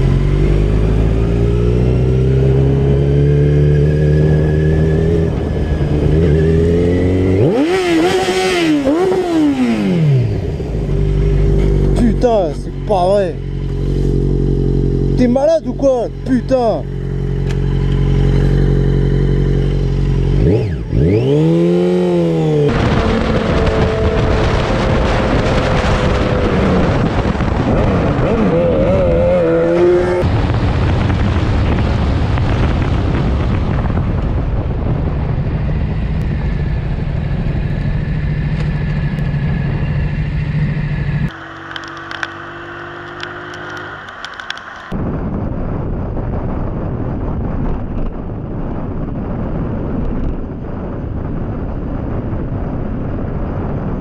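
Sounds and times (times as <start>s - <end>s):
motorcycle engines running: 0.0s - 34.5s, 35.3s - 45.0s.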